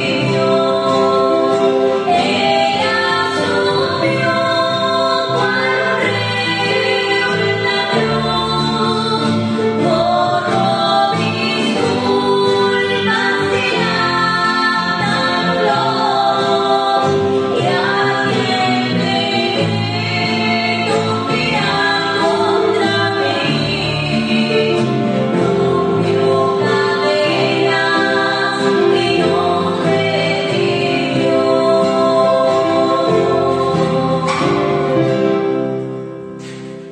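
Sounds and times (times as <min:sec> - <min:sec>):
women singing together: 0:00.0 - 0:35.4
acoustic guitar: 0:00.0 - 0:36.9.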